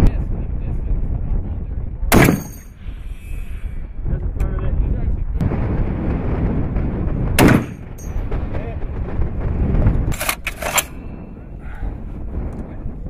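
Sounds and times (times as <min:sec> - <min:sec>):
steady low rumble: 0:00.0 - 0:13.0
rifle shot: 0:02.1 - 0:02.7, 0:07.3 - 0:08.4, 0:10.1 - 0:11.1.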